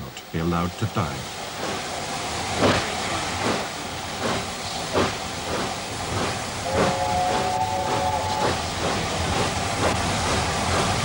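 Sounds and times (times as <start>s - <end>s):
hiss of steam: 0.0s - 11.0s
steam locomotive chuffing: 0.0s - 11.0s
steam whistle chord: 6.6s - 8.6s.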